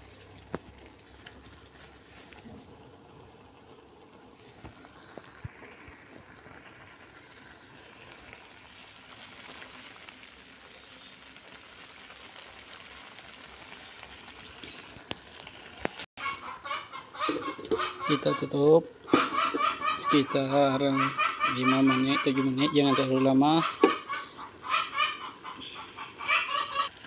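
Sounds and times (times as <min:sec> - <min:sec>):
shrimp simmering in a wok: 0:00.0 - 0:16.1.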